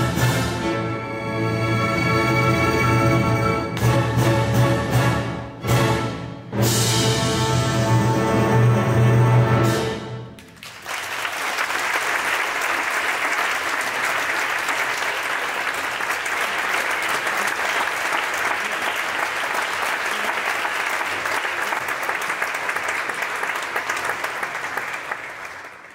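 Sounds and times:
audience applauding: 0:10.4 - 0:25.9.

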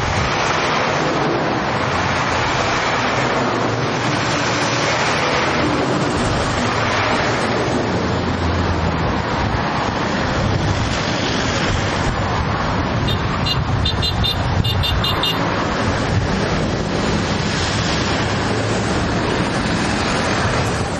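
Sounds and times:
truck engines humming: 0:00.0 - 0:20.9
short high beeps: 0:13.1 - 0:15.4.

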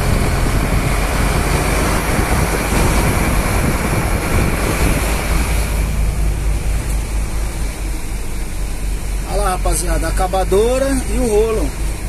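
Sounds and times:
wind buffeting microphone: 0:00.0 - 0:09.2
diesel engine rumbling: 0:00.0 - 0:12.0
wind and road noise: 0:00.0 - 0:12.0.

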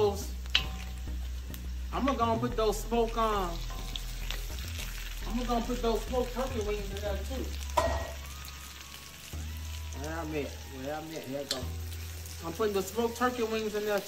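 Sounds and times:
food sizzling in grease: 0:00.0 - 0:14.0
spoon knocking: 0:07.8 - 0:08.2.

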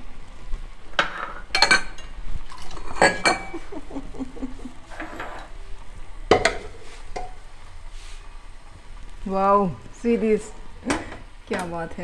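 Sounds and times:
metal ladle scraping pot: 0:04.9 - 0:05.6.

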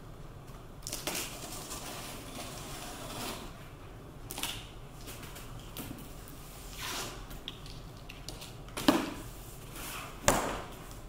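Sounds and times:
packing tape being cut: 0:00.8 - 0:03.6, 0:04.3 - 0:05.3.

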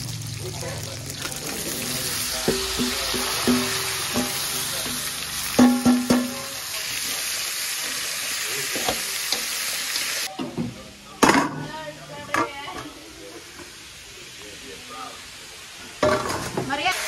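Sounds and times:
meat sizzling in oil: 0:00.0 - 0:10.3, 0:13.4 - 0:17.0
metal utensil clinking on pan: 0:02.4 - 0:06.4.

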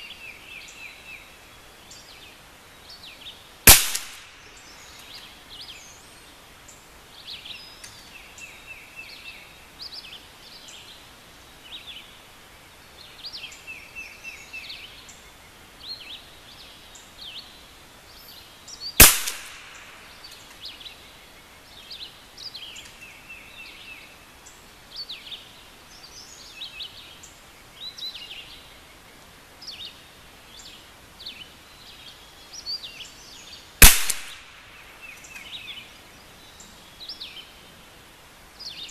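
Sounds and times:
birds chirping and trilling: 0:00.0 - 0:38.9
rifle shots: 0:03.7 - 0:04.4, 0:19.0 - 0:20.0, 0:33.8 - 0:34.6.

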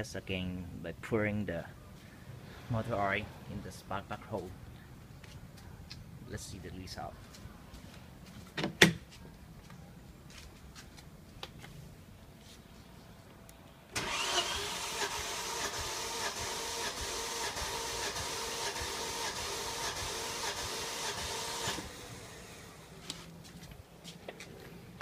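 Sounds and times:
car engine cranking on starter: 0:13.9 - 0:22.7.

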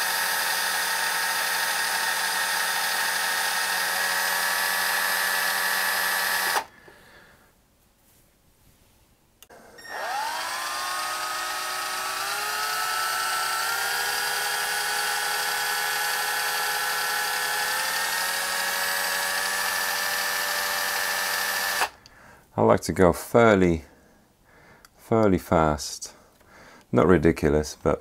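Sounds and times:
electric drill motor whining: 0:00.0 - 0:06.7, 0:09.5 - 0:22.0.

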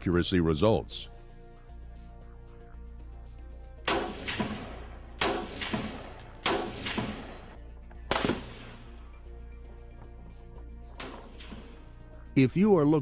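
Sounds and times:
background music: 0:00.0 - 0:13.0
rifle shots: 0:03.8 - 0:09.2, 0:11.0 - 0:11.8.

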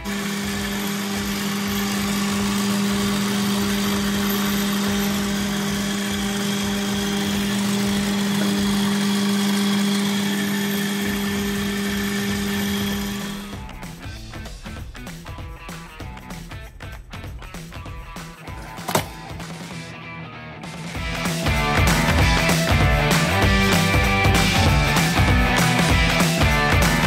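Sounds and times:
noodle-cutting machine motor hum: 0:00.0 - 0:14.0.

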